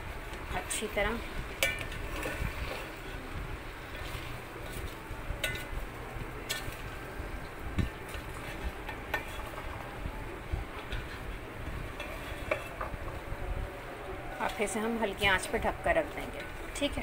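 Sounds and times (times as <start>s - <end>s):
low steady hum: 0.0s - 17.0s
spatula stirring in metal pot: 1.5s - 3.2s, 7.8s - 9.8s, 10.8s - 12.9s.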